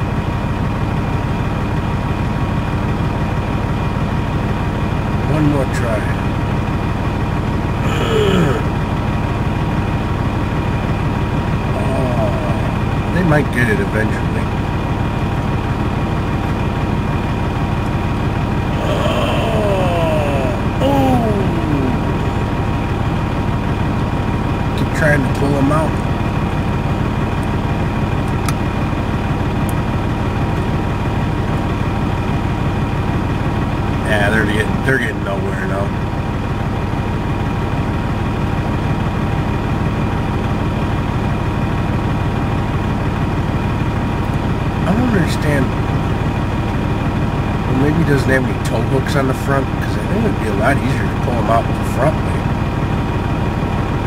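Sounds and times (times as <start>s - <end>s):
diesel truck engines running: 0.0s - 54.0s
falling whine: 18.7s - 23.6s.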